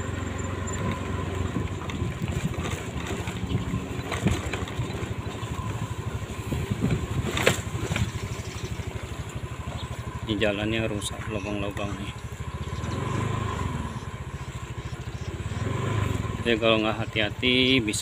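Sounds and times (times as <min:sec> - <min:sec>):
knocks and rattles from bumps: 0:00.0 - 0:13.0
small motorcycle engine running: 0:00.0 - 0:18.0.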